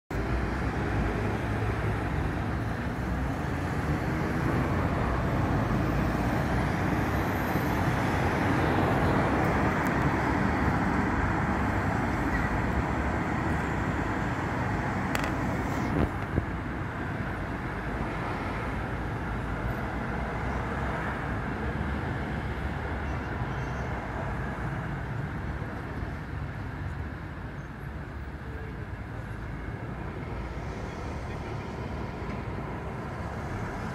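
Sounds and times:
road traffic passing: 0.1s - 33.9s.

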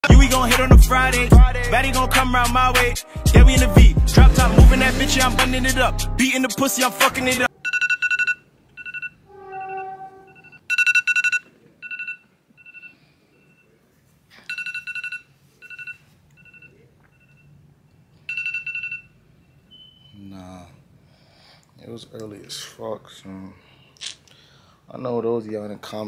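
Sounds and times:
phone alarm ringtone trilling: 7.6s - 13.6s, 14.5s - 17.6s, 18.3s - 19.2s
brief lower tone: 9.3s - 10.6s.

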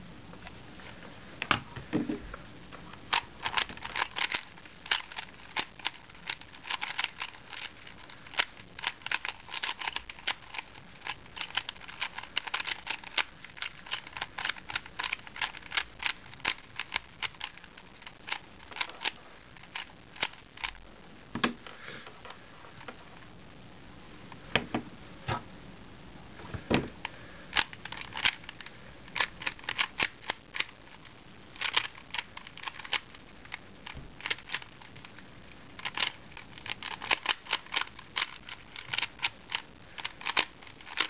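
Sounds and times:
puzzle cube clicking as turned: 3.1s - 20.8s, 27.6s - 30.7s, 31.6s - 34.8s, 35.8s - 41.0s.

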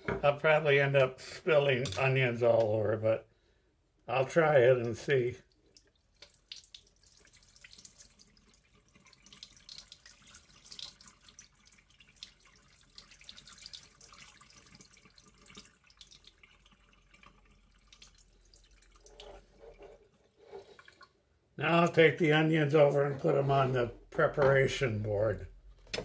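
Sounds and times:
water trickling into a sink: 4.8s - 21.2s.

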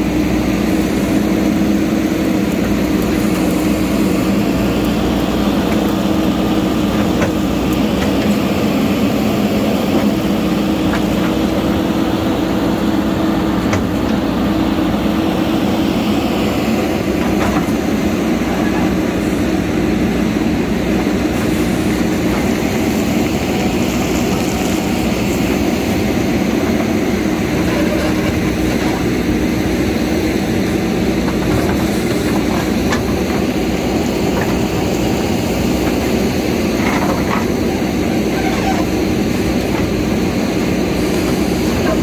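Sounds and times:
diesel engine running: 0.0s - 42.0s
backhoe arm digging: 16.3s - 42.0s.

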